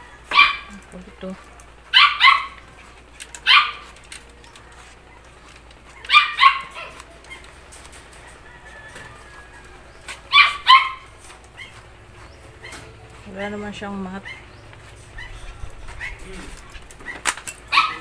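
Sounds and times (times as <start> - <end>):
small dog barking: 0.3 - 0.8, 1.4 - 2.7, 3.4 - 4.0, 6.0 - 7.5, 10.3 - 11.8, 14.2 - 18.0.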